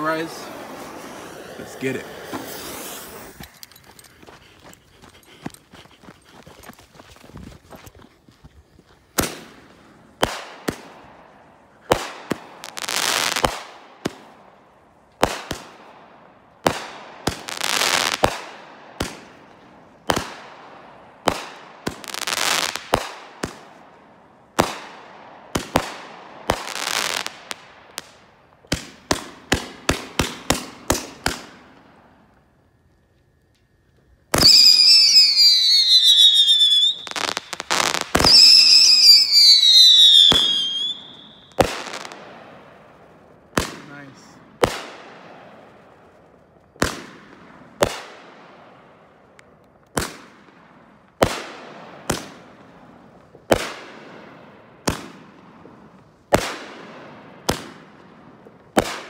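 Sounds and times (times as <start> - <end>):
firework shell hiss: 0.0 - 3.6
whistling firework shots: 0.0 - 3.7, 9.0 - 14.5, 15.2 - 23.9, 24.5 - 32.5, 34.3 - 59.0
firework launch thumps: 0.6 - 3.6.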